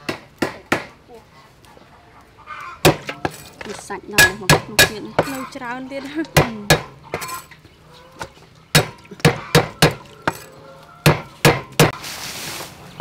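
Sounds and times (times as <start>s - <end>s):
cleaver chopping on wooden block: 0.0s - 0.9s, 2.8s - 3.1s, 8.7s - 10.4s, 11.0s - 12.0s.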